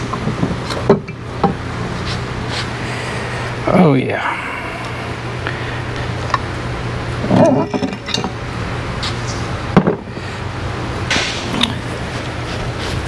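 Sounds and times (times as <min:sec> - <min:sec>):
steady background hum: 0:00.0 - 0:13.0
man grunting with effort: 0:03.6 - 0:05.3
metal parts clinking: 0:07.2 - 0:08.4.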